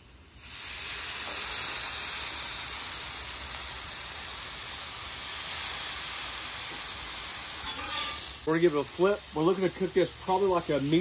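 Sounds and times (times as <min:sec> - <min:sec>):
steaks sizzling on griddle: 0:00.0 - 0:11.0.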